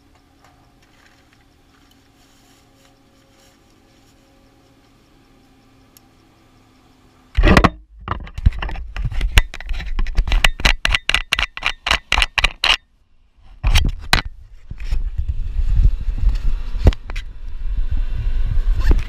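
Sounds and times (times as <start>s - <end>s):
low rumble: 14.4s - 19.0s.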